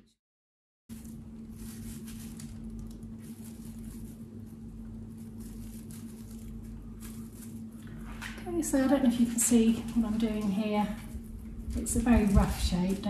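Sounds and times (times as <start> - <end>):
cling film crinkling: 0.9 - 8.6
steady low hum: 0.9 - 13.0.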